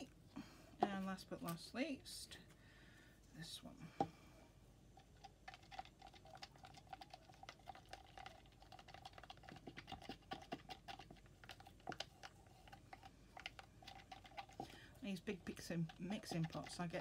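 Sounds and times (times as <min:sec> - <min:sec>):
stir stick scraping plastic cup: 0:05.0 - 0:17.0.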